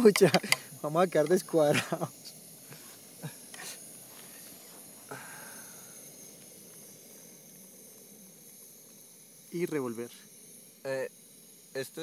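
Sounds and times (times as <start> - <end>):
camping stove hissing: 0.0 - 12.0.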